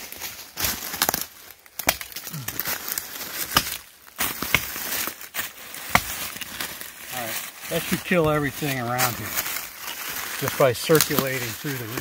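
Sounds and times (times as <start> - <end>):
dry leaves rustling underfoot: 0.0 - 12.0
hatchet chopping into bark: 3.4 - 4.8, 5.8 - 6.2.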